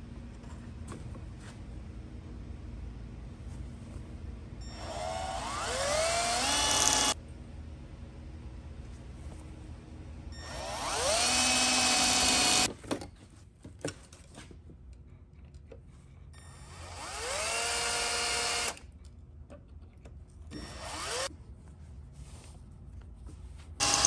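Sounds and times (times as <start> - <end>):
drill whining through metal: 4.7 - 7.2, 10.4 - 12.7, 16.4 - 18.8, 20.5 - 21.3, 23.8 - 24.0.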